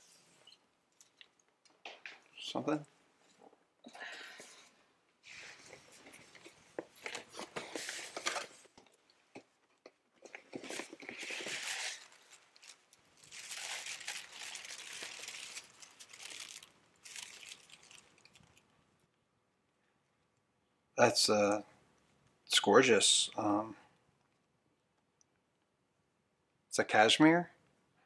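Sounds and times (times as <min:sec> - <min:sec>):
wrapping paper tearing and crinkling: 0:10.6 - 0:18.6.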